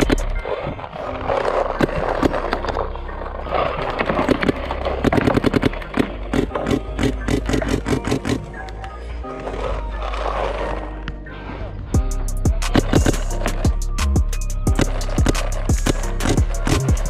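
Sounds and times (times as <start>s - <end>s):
paintball markers popping: 12.6s - 14.1s, 14.7s - 17.0s.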